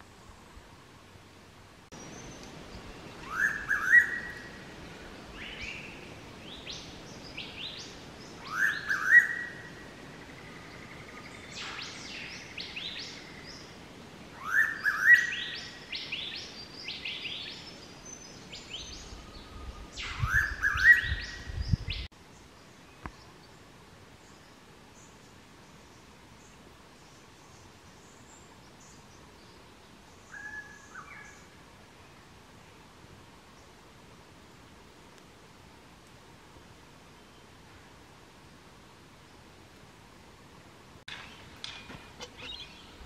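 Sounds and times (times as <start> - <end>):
birds chirping: 41.1 - 43.0.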